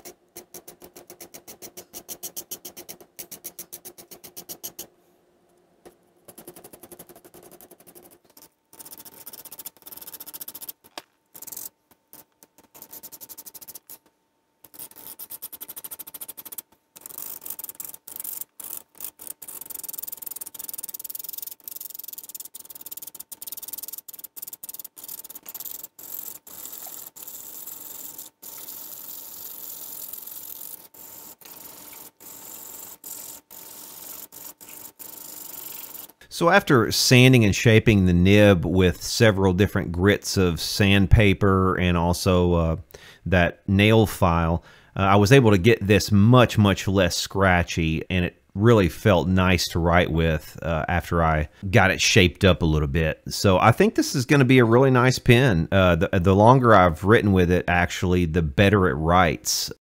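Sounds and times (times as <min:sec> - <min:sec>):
nail file filing metal nib: 0:00.0 - 0:04.9, 0:06.3 - 0:36.2
nib scraping on sandpaper: 0:06.3 - 0:14.0, 0:14.6 - 0:36.2.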